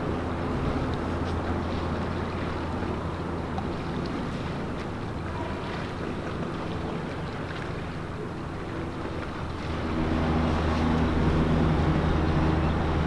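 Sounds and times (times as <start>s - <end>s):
motorboat engine humming: 0.0s - 13.0s.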